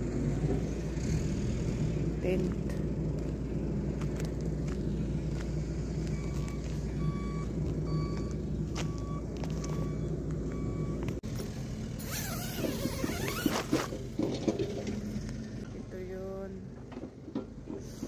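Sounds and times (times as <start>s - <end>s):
vehicle engine running: 0.0s - 18.0s
short electronic beeps: 6.1s - 11.1s.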